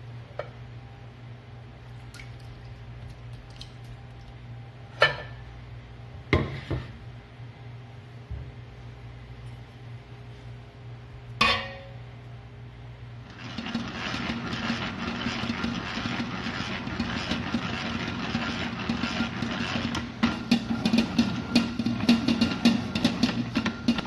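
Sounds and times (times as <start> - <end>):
dough mixer running: 13.2 - 24.0.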